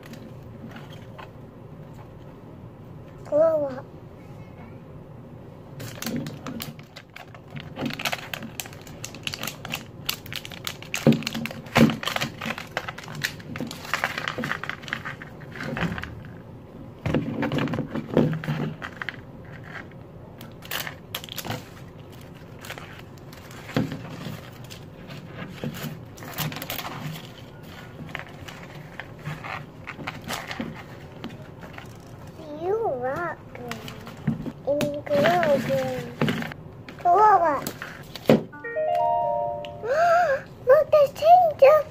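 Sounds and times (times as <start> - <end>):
plastic wrapping crinkling and tearing: 5.8 - 16.3, 18.4 - 32.3.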